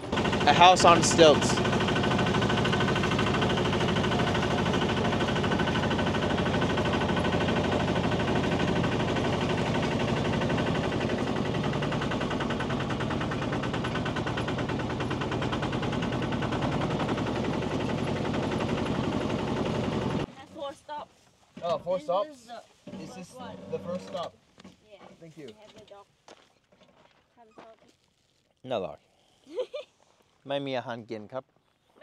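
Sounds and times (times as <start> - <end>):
tractor diesel engine running: 0.0 - 20.3.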